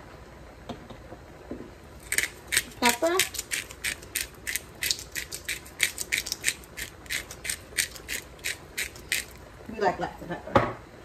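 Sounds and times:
pepper mill grinding: 2.0 - 9.5.

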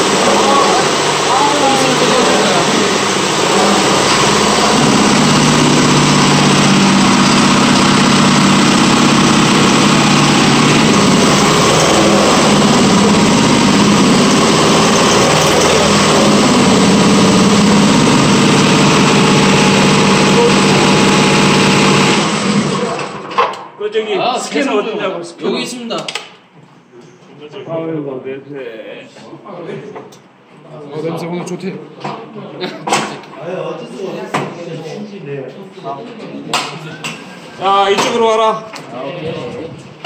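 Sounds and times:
car engine idling: 0.0 - 22.8.

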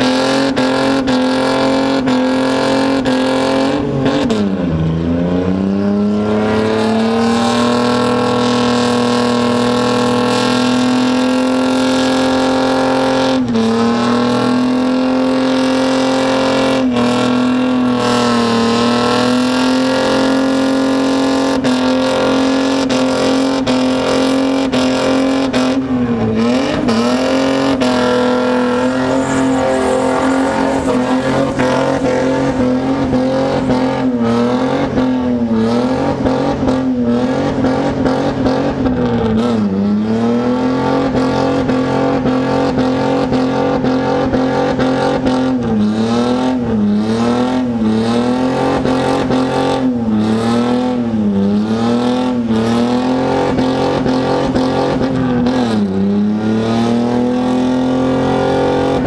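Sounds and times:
engine revving high: 0.0 - 59.0.

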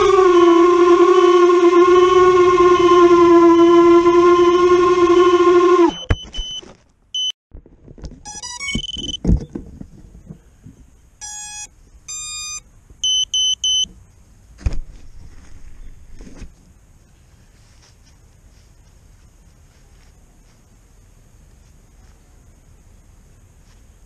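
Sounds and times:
drone motors whining: 0.0 - 6.2
short electronic beeps: 5.9 - 6.6, 7.2 - 7.4, 8.3 - 9.2, 11.2 - 13.9.

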